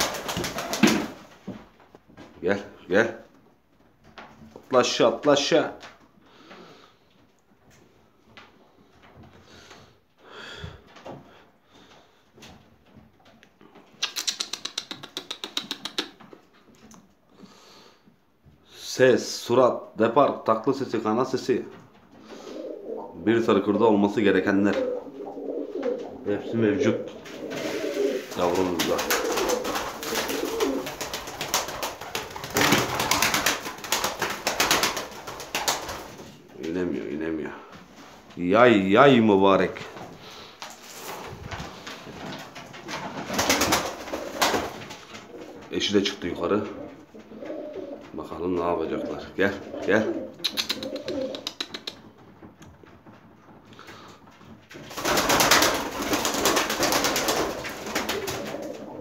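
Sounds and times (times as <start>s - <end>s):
pigeon wings flapping: 0.0s - 1.4s, 27.2s - 36.4s, 40.8s - 45.9s, 49.6s - 59.0s
pigeons cooing: 22.1s - 23.3s, 24.6s - 33.4s, 46.7s - 48.2s, 49.0s - 52.0s, 56.8s - 59.0s.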